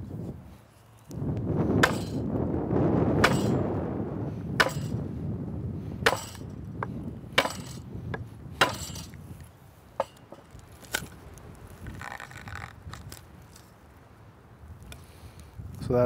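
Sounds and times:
mallet striking hatchet: 1.8 - 2.2, 3.2 - 3.6, 4.6 - 5.0, 6.0 - 6.5, 7.4 - 7.8, 8.6 - 9.1.

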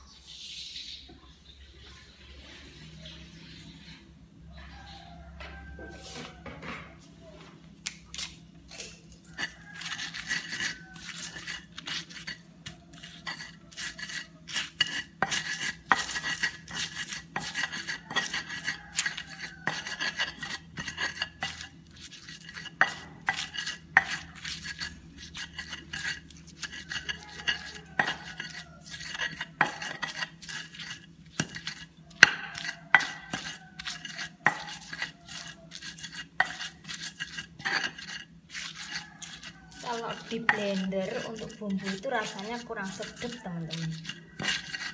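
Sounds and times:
stone pestle grinding in mortar: 9.3 - 44.9.

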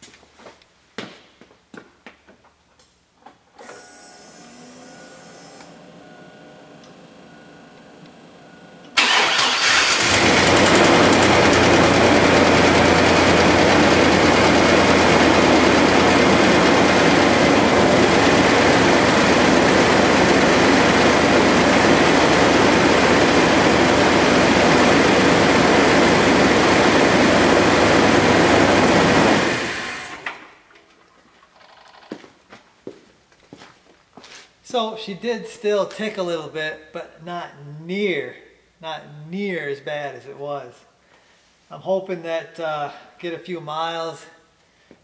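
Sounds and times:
engine cranking: 8.9 - 23.4.

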